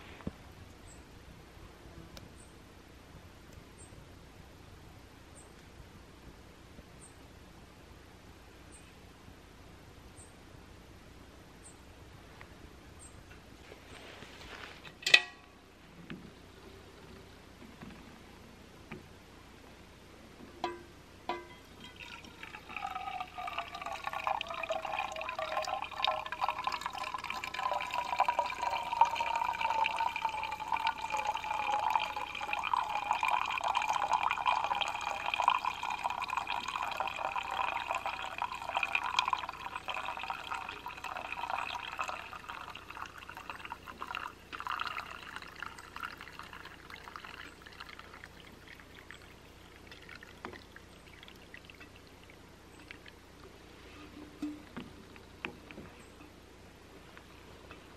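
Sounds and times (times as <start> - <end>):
coffee trickling into metal cup: 20.6 - 53.2.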